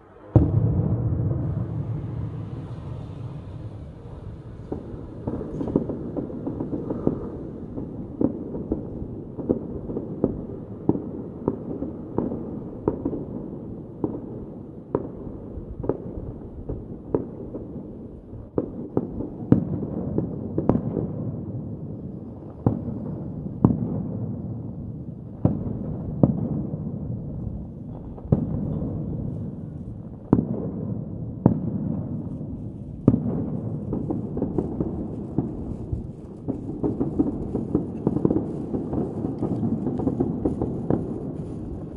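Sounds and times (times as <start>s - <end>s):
low rumble and crackle: 0.0s - 13.2s, 24.4s - 41.9s
muffled firework bangs: 0.3s - 13.3s, 25.4s - 41.9s.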